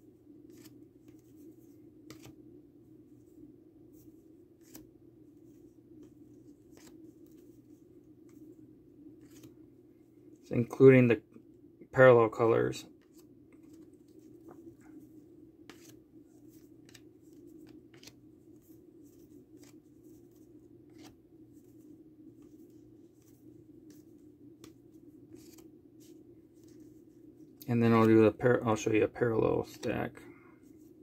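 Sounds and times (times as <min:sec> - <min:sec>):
low steady hum: 0:00.0 - 0:31.0
trading cards flicking and clicking: 0:02.1 - 0:02.4, 0:15.7 - 0:18.2, 0:20.9 - 0:21.2.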